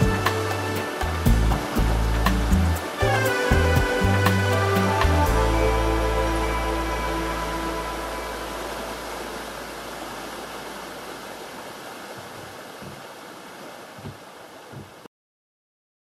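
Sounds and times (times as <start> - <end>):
river water rushing over rocks: 0.0 - 15.1
soft low thumps: 12.1 - 13.1, 14.0 - 15.1.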